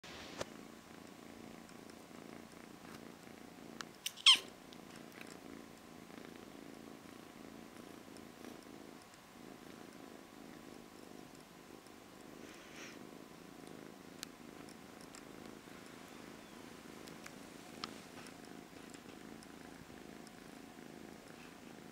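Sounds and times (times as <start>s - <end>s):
cat purring: 0.1s - 21.9s
faint clicks: 8.1s - 9.2s, 13.6s - 20.5s.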